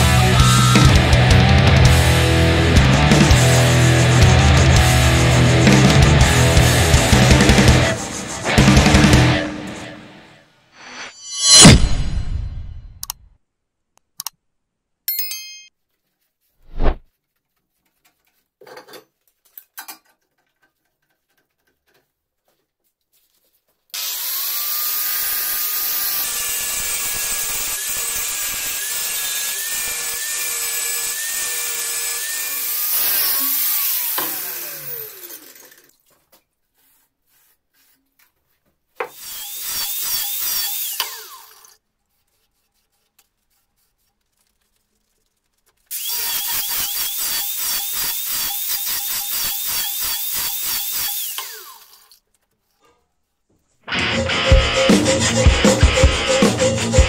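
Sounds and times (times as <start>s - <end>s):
angle grinder grinding steel: 10.8s - 12.2s, 24.0s - 36.0s, 39.1s - 41.8s, 45.9s - 52.1s, 53.9s - 57.0s.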